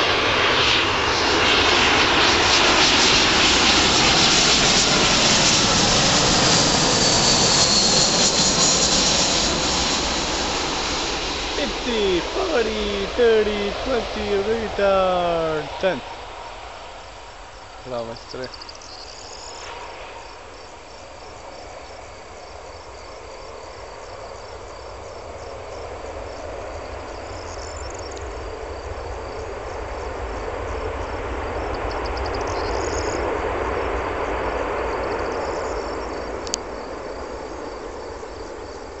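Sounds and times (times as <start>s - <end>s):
crickets chirping: 17.0s - 19.6s.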